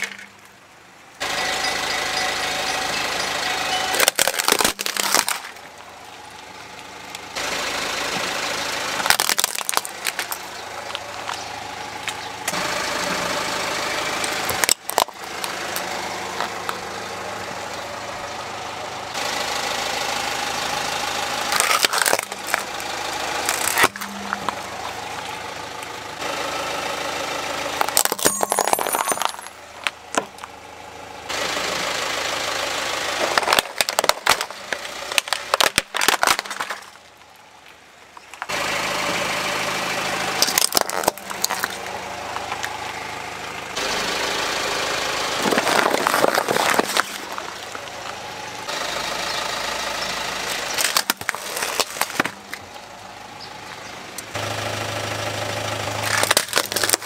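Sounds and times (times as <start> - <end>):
car engine idling: 0.0 - 57.0
plastic cracking and snapping: 4.0 - 5.6, 9.0 - 11.4, 14.5 - 15.5, 21.5 - 22.7, 23.4 - 24.6, 33.2 - 37.1, 40.4 - 41.8, 45.4 - 47.5, 50.7 - 52.6, 56.0 - 57.0.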